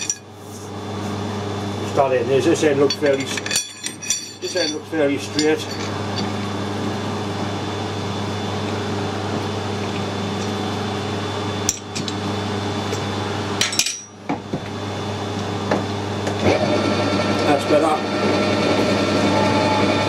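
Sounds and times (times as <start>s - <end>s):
electrical hum: 0.0s - 20.0s
metal clinks: 2.9s - 4.8s.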